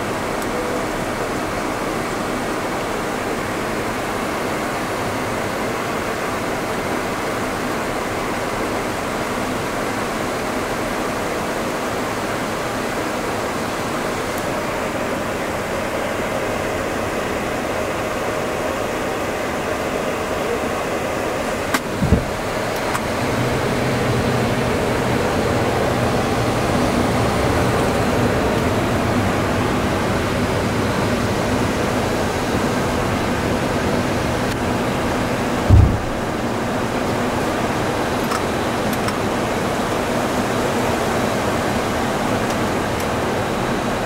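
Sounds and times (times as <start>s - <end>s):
faint steady tones: 0.0s - 8.8s.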